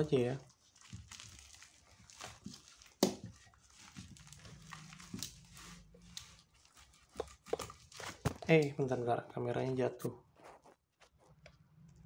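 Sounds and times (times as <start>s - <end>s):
plastic wrap crinkling: 0.0s - 9.2s.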